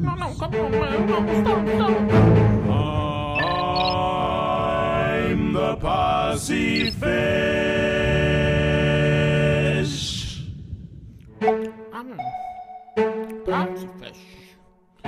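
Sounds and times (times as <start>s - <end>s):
voices singing a cappella: 0.9s - 10.5s.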